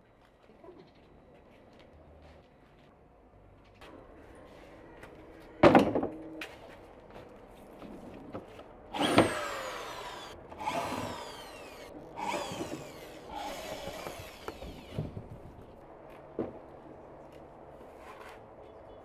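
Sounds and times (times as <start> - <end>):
electric drill whining: 9.0 - 15.3.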